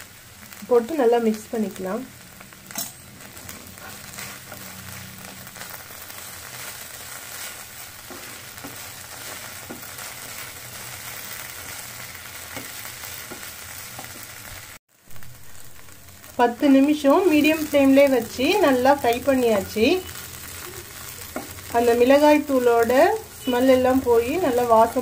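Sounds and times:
okra frying in oil: 0.0 - 25.0
wooden spatula tapping a pan: 21.3 - 21.6.

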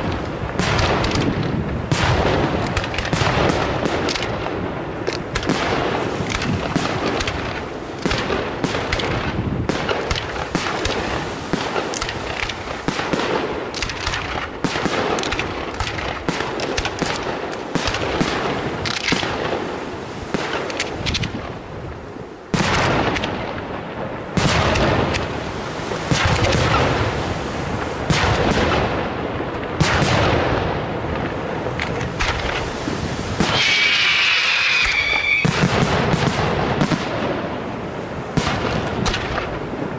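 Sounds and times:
firework shells bursting: 0.0 - 19.6, 31.2 - 37.2.

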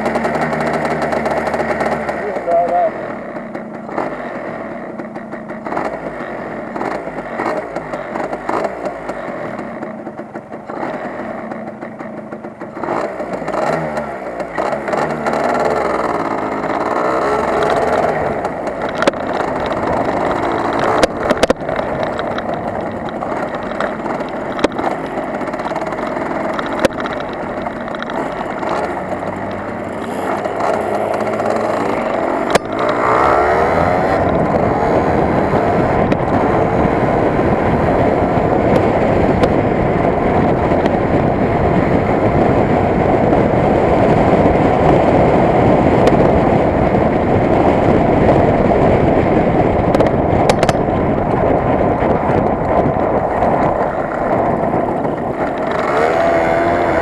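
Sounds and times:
two-stroke motorcycle engine revving: 0.0 - 57.0
sharp clicks: 5.0 - 35.0, 49.9 - 50.9.

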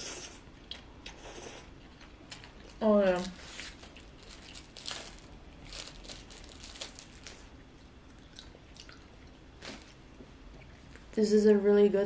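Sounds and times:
paper tissue crinkling: 2.9 - 7.5.

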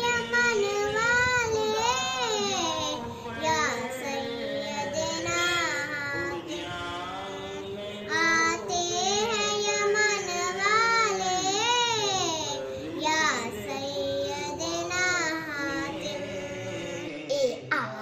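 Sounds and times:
girl singing unaccompanied: 0.0 - 16.5.

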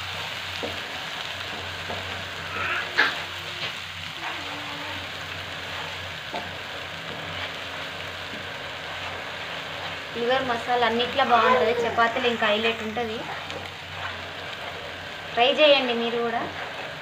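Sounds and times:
paste sizzling in oil: 0.0 - 17.0
spatula knocking on pan: 1.5 - 2.2
wooden spatula scraping a pan: 5.6 - 11.7, 13.2 - 15.1, 15.8 - 17.0.

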